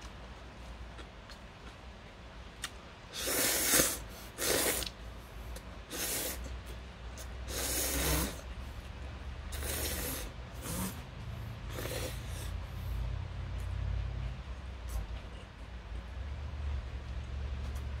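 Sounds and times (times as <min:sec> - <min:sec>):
person slurping noodles: 0:03.1 - 0:05.0, 0:05.9 - 0:06.5, 0:07.2 - 0:08.5, 0:09.5 - 0:11.0, 0:11.7 - 0:12.6.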